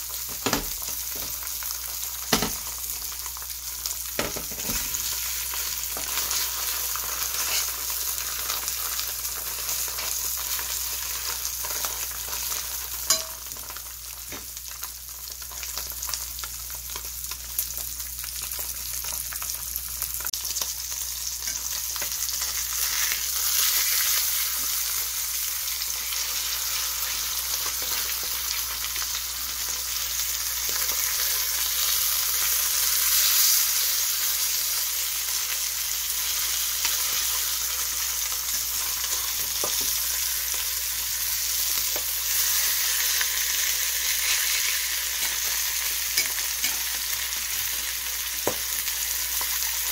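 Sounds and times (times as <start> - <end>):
fish sizzling in oil: 0.0 - 49.9
metal tongs clicking on pan: 13.1 - 13.6, 46.2 - 46.9.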